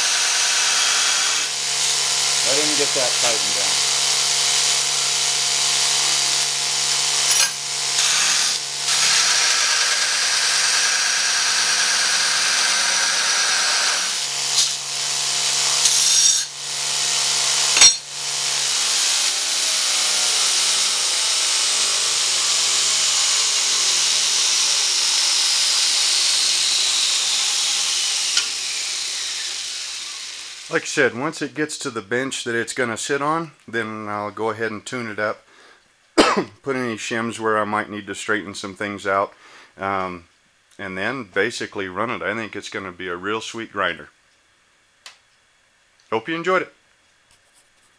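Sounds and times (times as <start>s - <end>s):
belt grinder grinding steel: 0.0s - 31.4s
electric motor hum: 0.0s - 31.7s.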